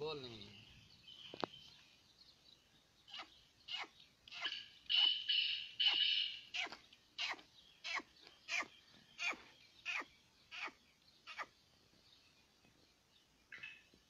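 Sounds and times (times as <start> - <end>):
francolin calling: 3.0 - 11.6.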